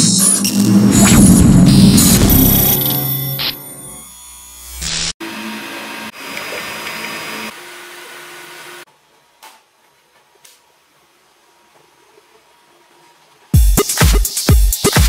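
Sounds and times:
short rising whoosh: 0.0s - 3.3s.

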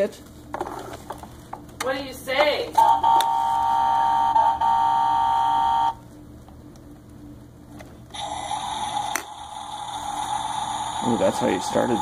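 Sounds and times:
toy electronic horn: 2.8s - 6.0s.

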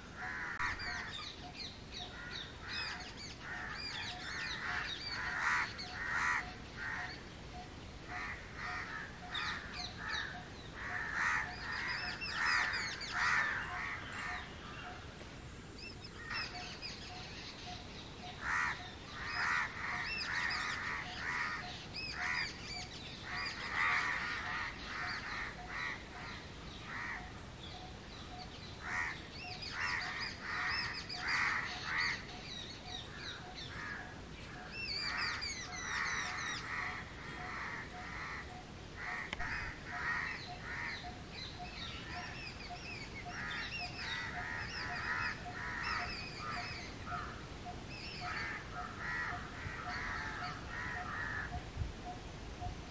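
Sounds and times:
crow cawing: 0.2s - 1.2s, 2.1s - 7.2s, 8.1s - 14.5s, 18.4s - 22.5s, 23.3s - 27.3s, 35.1s - 41.1s, 43.3s - 47.4s, 48.2s - 51.6s.

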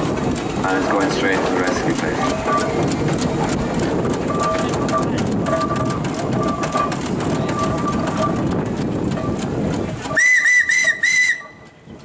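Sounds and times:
steady rumbling: 0.0s - 12.0s
steam whistle toots: 10.1s - 11.7s.

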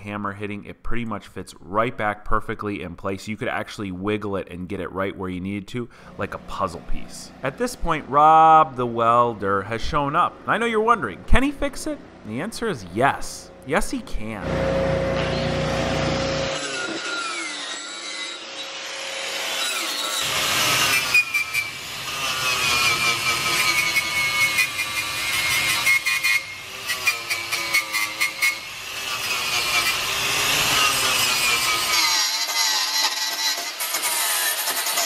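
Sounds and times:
angle grinder grinding metal: 13.4s - 35.0s.

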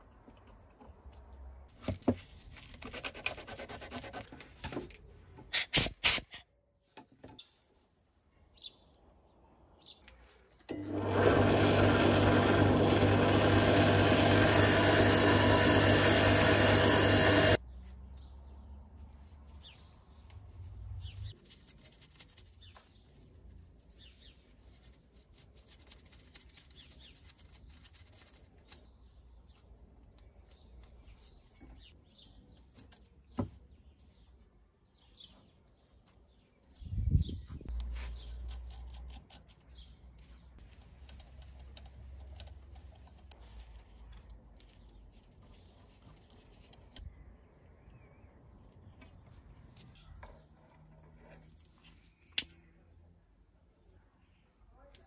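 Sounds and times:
drill press running: 10.7s - 17.6s.

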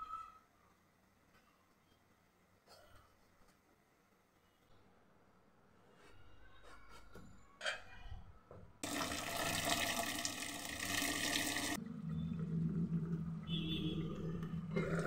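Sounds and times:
tap water running into pot: 8.8s - 11.8s.

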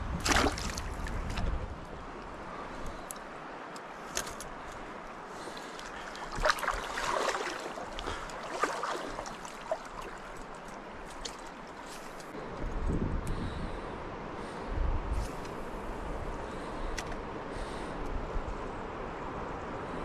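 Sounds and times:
river water running: 0.0s - 20.0s
splashing or rattling: 0.2s - 1.6s, 4.1s - 12.3s.

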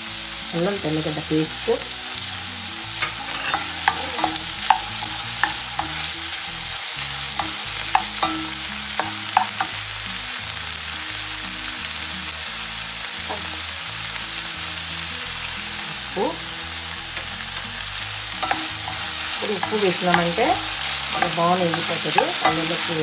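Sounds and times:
vegetables sizzling in oil: 0.0s - 23.0s
spatula scraping a pan: 2.9s - 9.8s, 18.4s - 23.0s.

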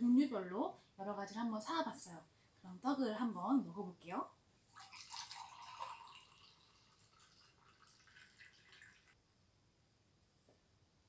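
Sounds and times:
liquid pouring into mug: 4.7s - 9.2s.

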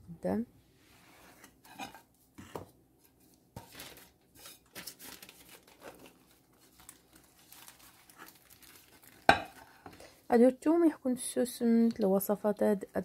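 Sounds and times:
paper doily rustling: 3.0s - 9.8s.

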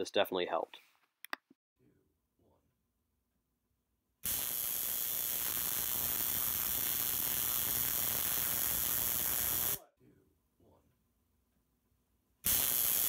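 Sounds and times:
tesla coil buzzing: 4.2s - 9.8s, 12.5s - 13.0s.

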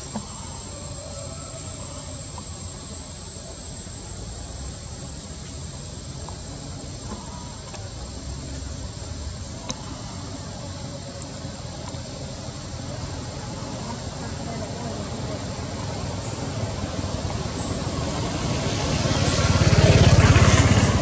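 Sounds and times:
insect drone: 0.0s - 21.0s.

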